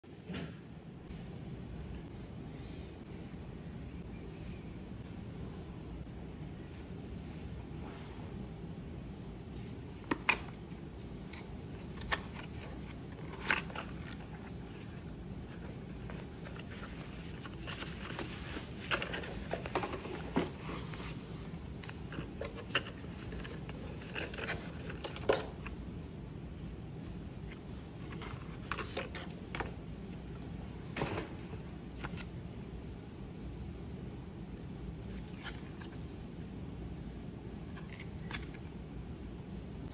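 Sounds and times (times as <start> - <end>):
steady low hum: 0.0 - 39.9
paper crinkling: 11.2 - 25.7.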